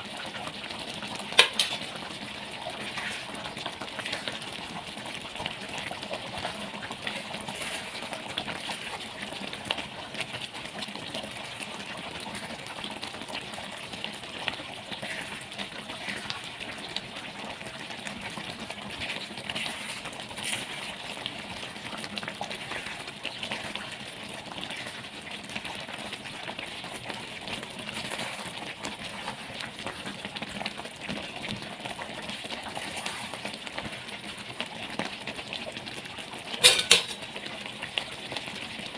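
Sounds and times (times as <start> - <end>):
curry simmering: 0.0 - 38.9
spoon scraping metal pan: 36.6 - 37.2.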